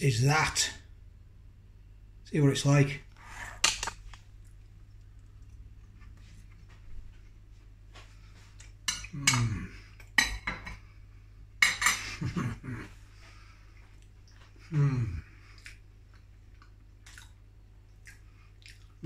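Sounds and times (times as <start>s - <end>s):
person chewing: 3.7s - 7.3s, 13.7s - 19.0s
person murmuring: 14.7s - 15.3s.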